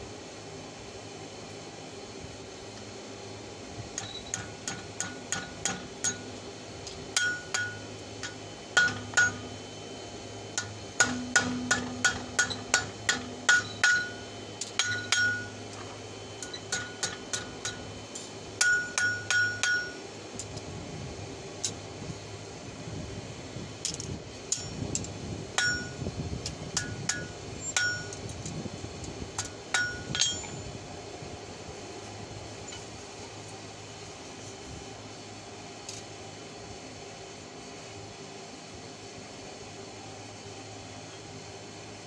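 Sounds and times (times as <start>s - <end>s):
steady low hum: 0.0s - 42.0s
hammer striking steel on anvil: 4.0s - 6.4s, 7.1s - 9.6s, 10.6s - 20.0s, 24.5s - 24.9s, 25.6s - 26.0s, 26.7s - 28.2s, 29.4s - 30.7s
metallic anvil ring: 4.0s - 6.4s, 7.2s - 9.6s, 10.6s - 15.7s, 16.4s - 20.0s, 24.5s - 24.8s, 25.6s - 26.0s, 26.8s - 28.2s, 29.4s - 30.7s.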